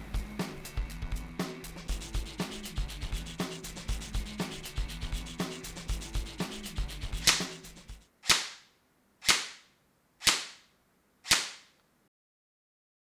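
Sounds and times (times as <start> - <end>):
music with a beat: 0.0 - 8.1
sharp cracking hits: 8.2 - 10.7, 11.3 - 11.7.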